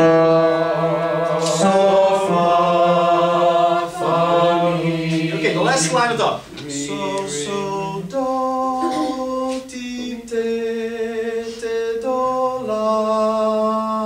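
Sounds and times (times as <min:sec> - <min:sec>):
class singing a cappella: 0:00.0 - 0:14.0.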